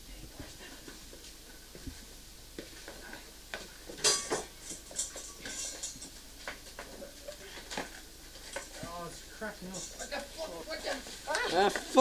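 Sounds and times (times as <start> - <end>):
kitchenware clicks and knocks: 3.9 - 6.8
kitchenware clatter: 3.9 - 8.8.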